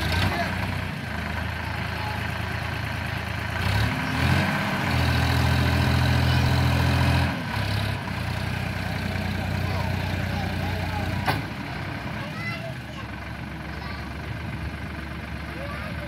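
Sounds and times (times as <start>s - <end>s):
tractor diesel engine revving: 0.0s - 16.0s.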